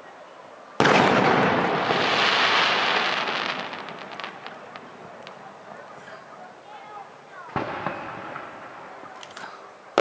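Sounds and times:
firework bang: 0.8s - 5.4s, 7.5s - 8.9s.

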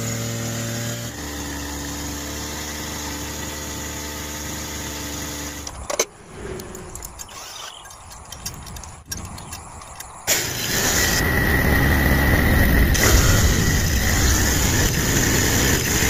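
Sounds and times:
sharp clicks: 5.6s - 10.4s
model motor humming: 10.3s - 16.0s.

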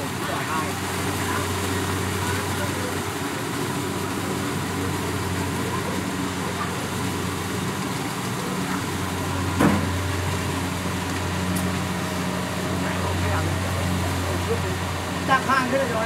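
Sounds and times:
diesel engine drone: 0.0s - 16.0s.

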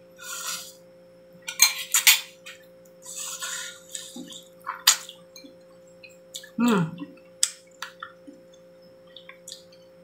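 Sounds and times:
wet slurping and sucking: 3.0s - 4.4s.

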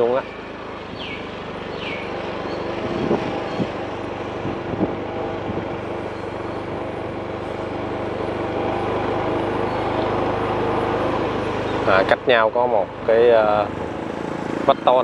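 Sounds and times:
vehicle engine running: 0.0s - 15.0s
wind noise on microphone: 2.4s - 6.0s.

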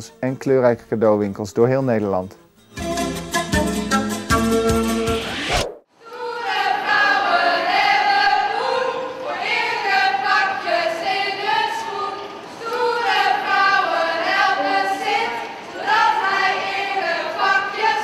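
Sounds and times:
women singing in chorus: 6.0s - 18.0s.

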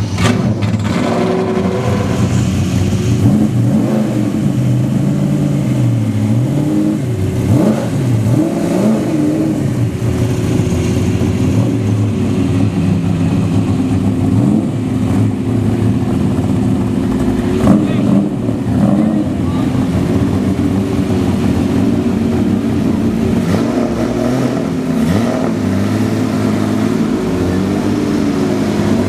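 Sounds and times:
race car engines revving: 0.0s - 29.0s.

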